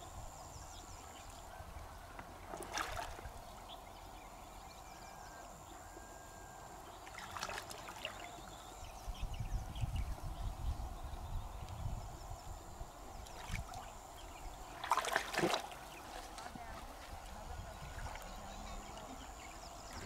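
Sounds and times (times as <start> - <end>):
water sloshing and splashing: 2.2 - 3.4, 7.0 - 8.6, 13.2 - 14.0, 14.6 - 19.2.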